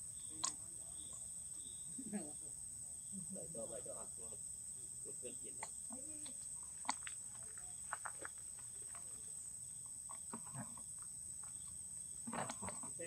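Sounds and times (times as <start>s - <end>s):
insects shrilling: 0.0s - 13.0s
small clicks and rustles: 5.6s - 9.4s, 10.1s - 13.0s.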